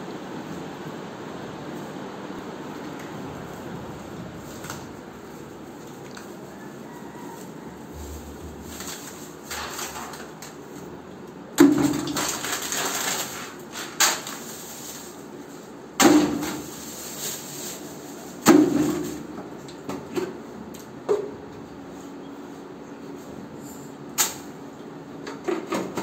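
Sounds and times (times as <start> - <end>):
plastic bag noise: 2.8 - 10.9, 11.6 - 19.6
items knocking into plastic bucket: 11.6 - 14.5, 16.0 - 16.8, 18.4 - 20.4.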